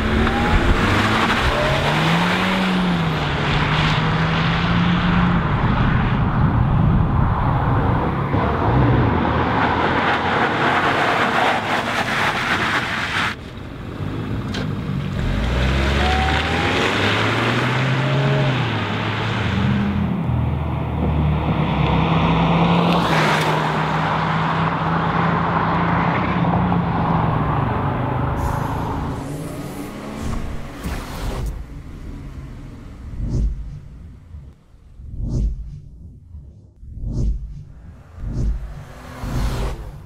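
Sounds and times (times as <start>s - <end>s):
car engine accelerating: 0.0s - 40.0s
steady rushing noise: 28.4s - 40.0s.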